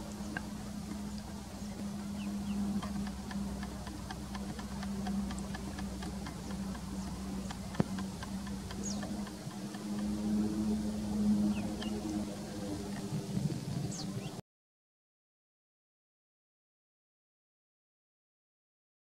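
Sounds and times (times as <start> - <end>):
duckling peeping: 0.0 - 12.6
rapid faint ticking: 0.0 - 14.0
steady low hum: 0.0 - 14.4.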